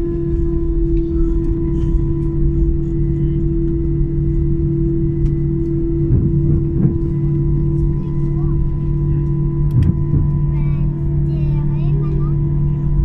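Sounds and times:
jet engines idling inside cabin: 0.0s - 13.0s.

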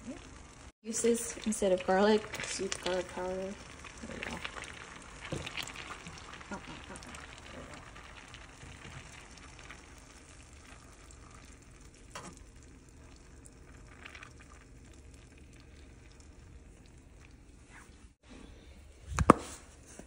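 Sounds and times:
shrimp sizzling in butter: 0.0s - 18.2s.

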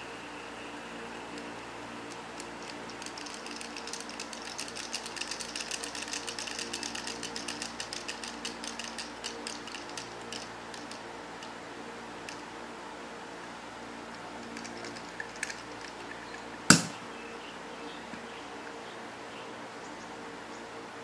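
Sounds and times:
fidget spinner clicking: 1.1s - 12.6s, 14.1s - 16.9s.

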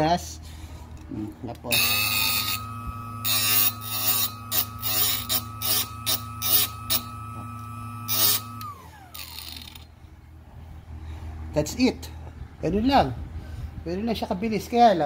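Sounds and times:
drill bit grinding on wheel: 1.7s - 9.9s
sharpener motor whining: 1.7s - 9.9s.

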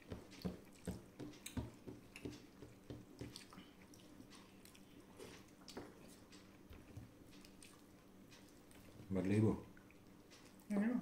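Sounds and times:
wet squishes of eating by hand: 0.0s - 9.1s
chewing: 0.3s - 9.0s.

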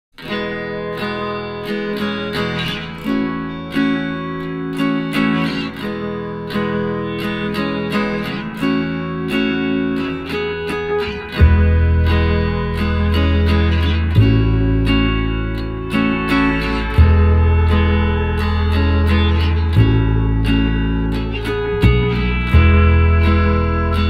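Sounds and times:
plucked guitar notes: 0.2s - 24.0s
deep bass: 11.4s - 24.0s.

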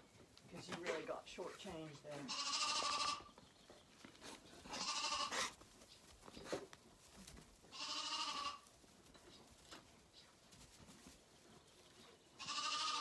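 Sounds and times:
lambs bleating: 2.1s - 3.3s, 4.6s - 5.6s, 7.7s - 8.7s, 12.4s - 13.0s.

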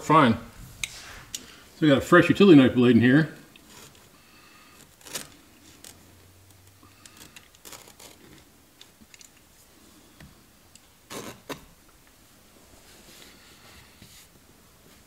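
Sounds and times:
clicks scrapes and rustles of hands: 4.8s - 9.5s.

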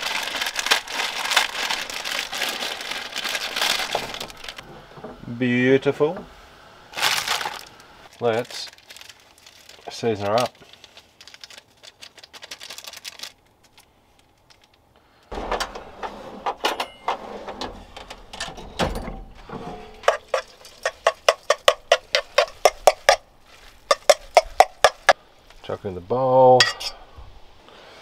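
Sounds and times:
utensil knocking and scraping pan: 19.4s - 23.2s, 23.8s - 25.2s.

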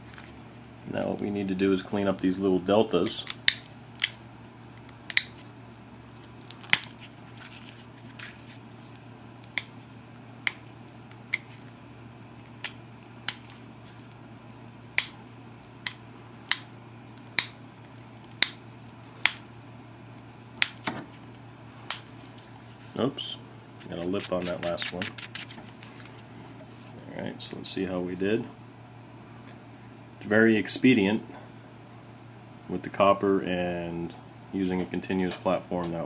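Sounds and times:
steady low hum: 0.0s - 36.0s
stone flakes snapping off: 6.2s - 9.8s, 12.4s - 22.6s.

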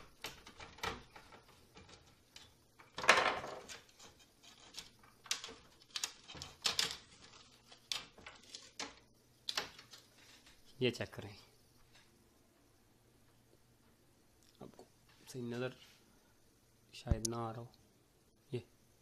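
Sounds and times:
plastic and metal clatter: 0.1s - 10.6s.

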